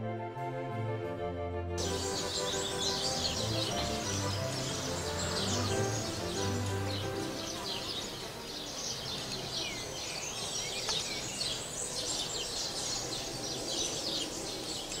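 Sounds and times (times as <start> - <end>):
background music: 0.0 - 12.4
small birds chirping: 1.8 - 15.0.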